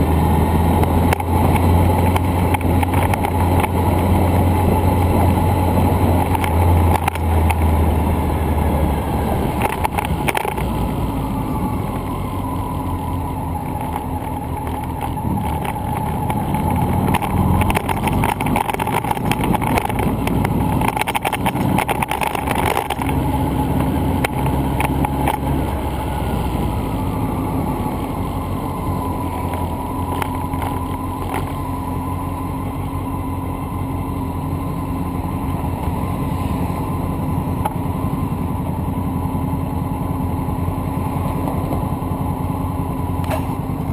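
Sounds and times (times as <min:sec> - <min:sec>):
thin steady whine: 0:00.0 - 0:43.9
wind and road rumble: 0:00.0 - 0:43.9
bicycle clicks and knocks: 0:01.1 - 0:04.0, 0:09.5 - 0:10.8, 0:13.1 - 0:23.2, 0:23.8 - 0:25.5, 0:29.4 - 0:31.7.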